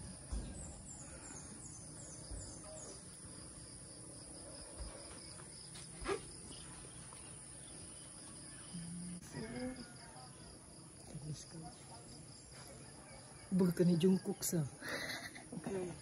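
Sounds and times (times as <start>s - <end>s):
insects buzzing chorus: 0.0s - 12.6s.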